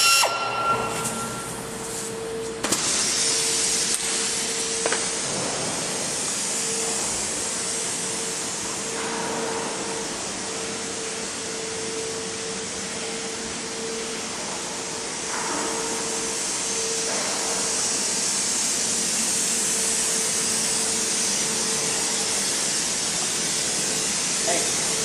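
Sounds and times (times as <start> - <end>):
steady hum: 0.0 - 25.0
machinery hissing: 2.8 - 8.8, 15.9 - 25.0.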